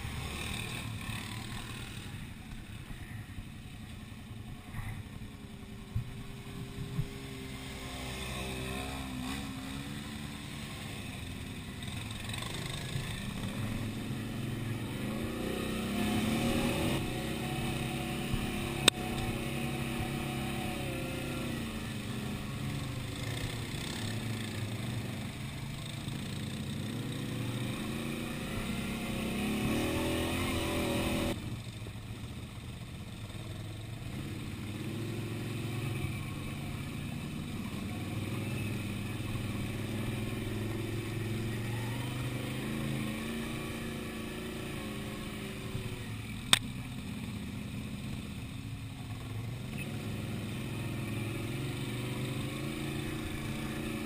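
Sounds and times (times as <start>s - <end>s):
quad bike engine revving: 0.0s - 2.6s, 6.2s - 31.6s, 33.1s - 54.0s
sharp click: 46.5s - 46.7s.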